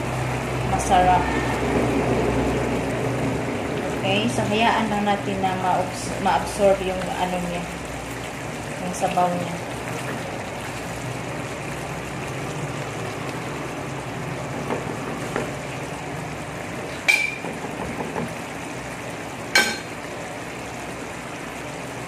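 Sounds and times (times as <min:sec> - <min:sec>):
curry simmering in a pan: 0:00.0 - 0:22.0
spatula clinking on cookware: 0:19.6 - 0:19.9.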